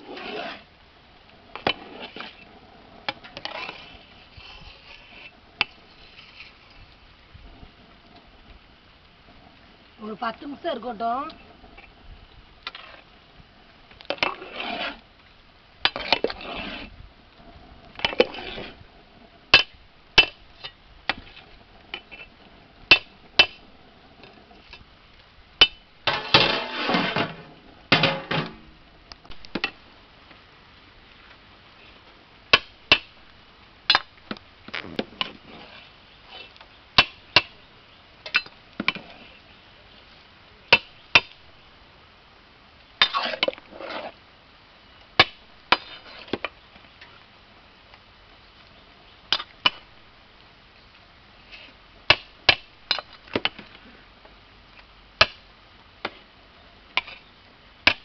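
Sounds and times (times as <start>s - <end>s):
metal ladle scraping a pot: 0.0s - 0.7s, 1.6s - 2.5s, 3.1s - 6.6s, 14.1s - 15.0s, 26.1s - 28.6s.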